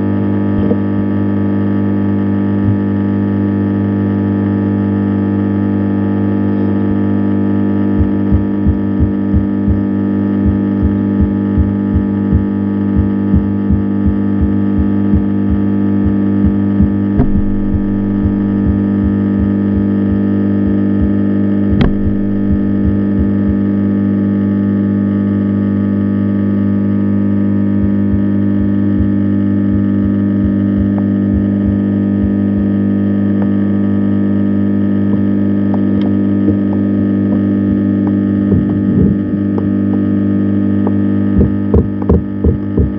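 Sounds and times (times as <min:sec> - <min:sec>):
low machine hum: 0:00.0 - 0:42.9
soft low thumps: 0:02.6 - 0:03.0, 0:07.9 - 0:23.8, 0:27.8 - 0:33.6, 0:35.0 - 0:40.2, 0:40.8 - 0:42.9
sharp click: 0:21.8 - 0:22.6.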